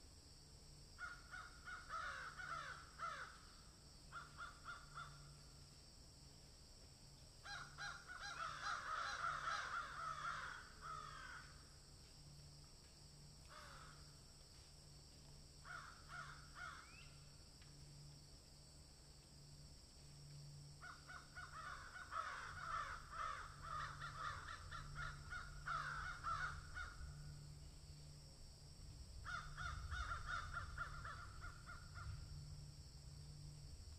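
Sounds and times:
harsh caw-like animal calls: 1.0s - 5.6s, 7.4s - 11.7s, 13.5s - 14.2s, 15.6s - 17.0s, 20.8s - 27.4s, 29.2s - 32.4s.

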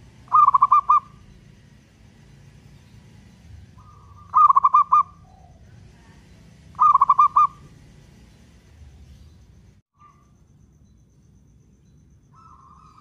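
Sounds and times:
dove cooing: 0.0s - 1.2s, 3.8s - 5.7s, 6.8s - 7.7s.

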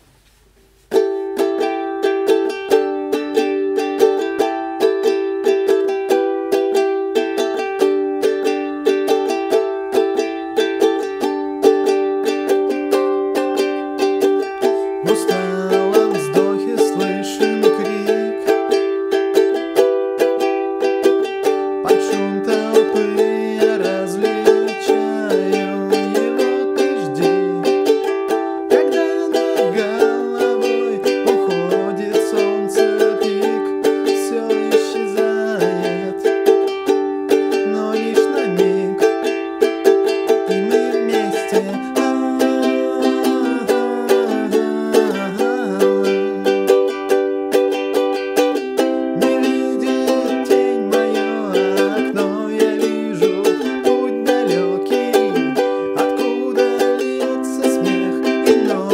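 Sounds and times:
ukulele strumming: 0.0s - 58.9s
man singing: 12.4s - 20.4s, 21.1s - 47.6s, 48.4s - 58.9s.

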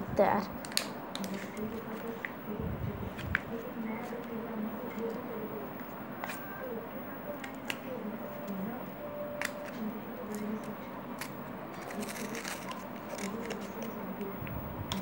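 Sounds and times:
wrapper crackling and crinkling: 9.4s - 14.1s.

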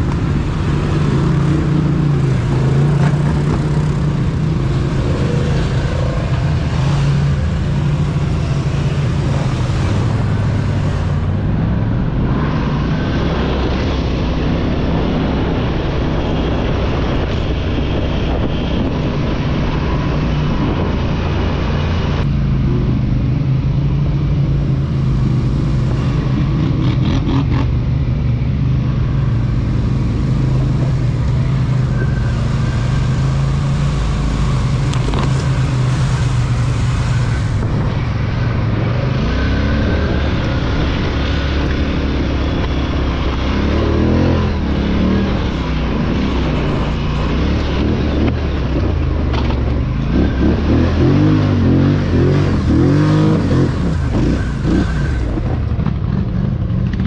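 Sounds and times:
atv engine revving: 28.6s - 57.0s.

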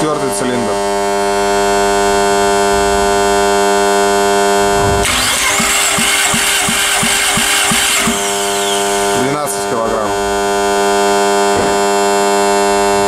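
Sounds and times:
steady electrical hum: 0.0s - 5.1s
starter cranking engine: 5.0s - 9.4s.

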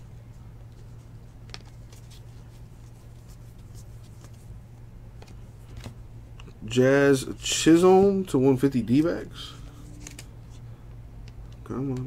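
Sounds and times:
low steady hum: 0.0s - 12.0s
trading cards flipped by hand: 0.6s - 4.5s, 5.2s - 6.0s, 9.8s - 10.6s.

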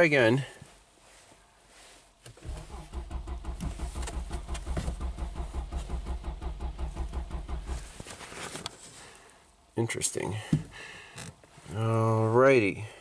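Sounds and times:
car starter cranking: 2.3s - 8.0s.

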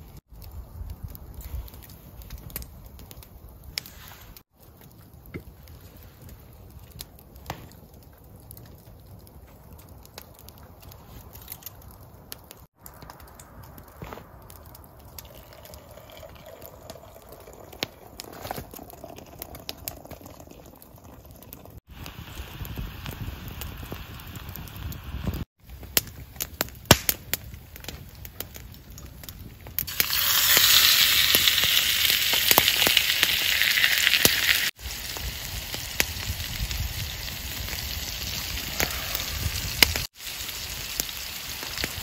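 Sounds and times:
twig fire crackling: 0.0s - 42.0s
hot water pouring into mug: 15.2s - 21.2s.

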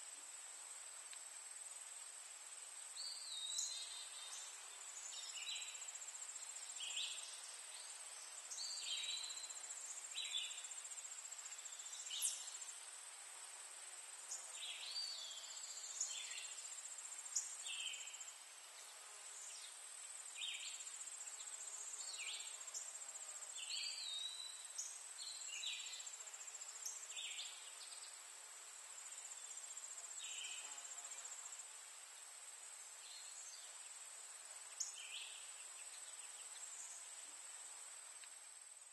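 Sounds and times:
short insect chirps: 11.6s - 12.8s.

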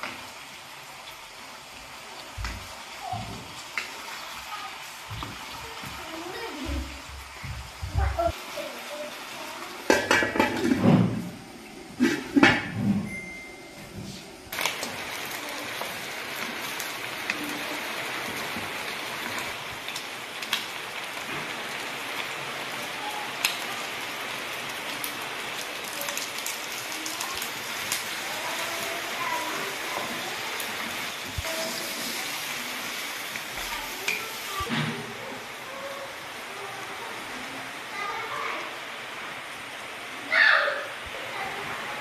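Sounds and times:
chicken sizzling in a wok: 0.0s - 42.0s.

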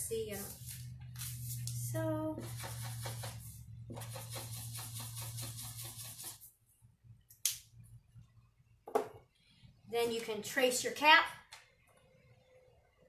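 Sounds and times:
marker scribbling on paper: 2.4s - 6.5s.

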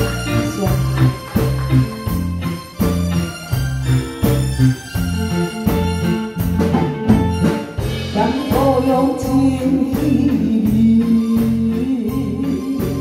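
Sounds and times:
live band playing a ballad: 0.0s - 13.0s
woman singing into microphone: 8.1s - 13.0s.

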